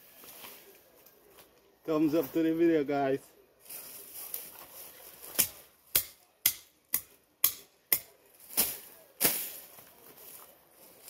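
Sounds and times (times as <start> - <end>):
vegetation rustling: 3.6 - 5.7, 8.3 - 11.0
blade hacking weeds: 7.4 - 9.7.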